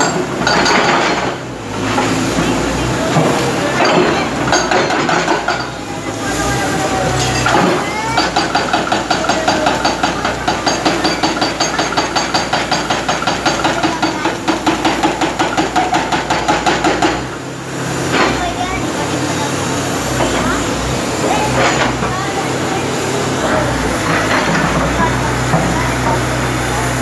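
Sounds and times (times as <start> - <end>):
knocks and clatter: 0.0 - 5.8
hydraulic breaker pounding concrete: 0.0 - 27.0.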